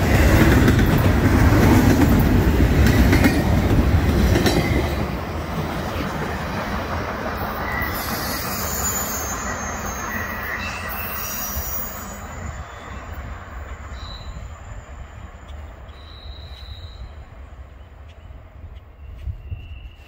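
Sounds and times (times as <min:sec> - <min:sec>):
train cars rumbling on rails: 0:00.0 - 0:20.0
high wheel squeals: 0:07.4 - 0:13.2.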